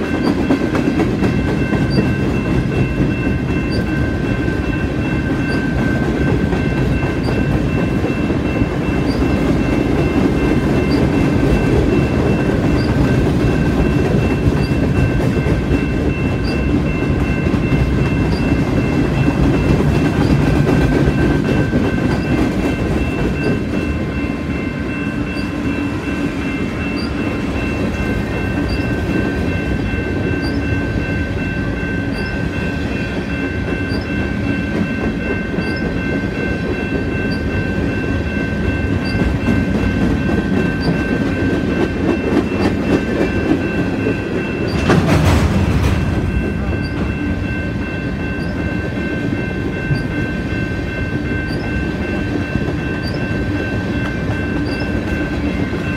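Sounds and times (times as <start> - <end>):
freight train rumbling past: 0.0 - 55.9
wheels clattering on rails: 0.0 - 55.9.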